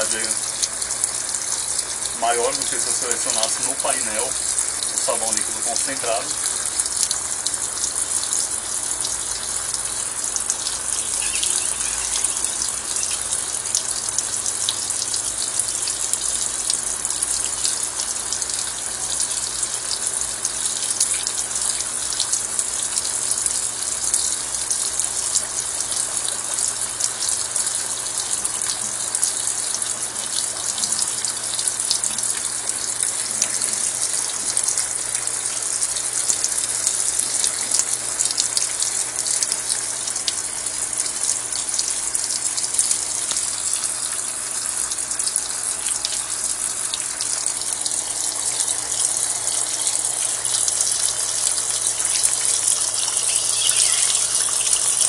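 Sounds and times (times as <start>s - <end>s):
washing machine filling with water: 0.0s - 55.0s.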